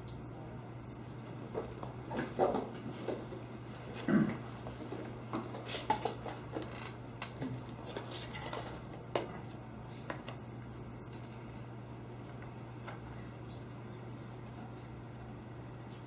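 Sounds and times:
steady low hum: 0.0s - 16.0s
paper and pencil rustles: 7.3s - 9.1s.

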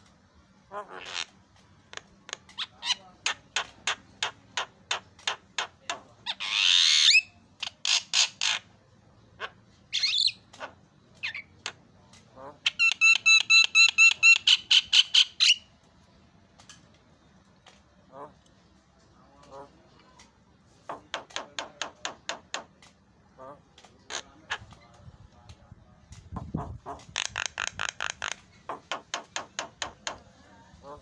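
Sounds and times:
bird harsh squawk: 0.7s - 1.4s, 2.3s - 8.7s, 9.4s - 11.5s, 12.4s - 15.7s.

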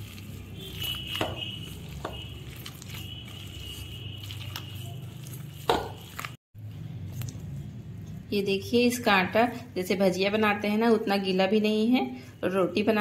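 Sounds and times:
hands squishing dough: 0.0s - 8.2s.

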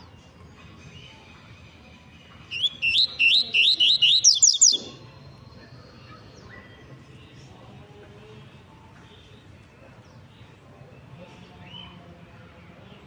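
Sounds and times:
bird singing quick rising notes: 2.5s - 6.9s.

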